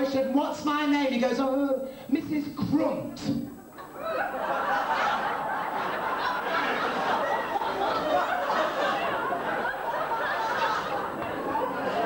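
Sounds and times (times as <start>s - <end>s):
audience laughing: 3.6s - 12.0s.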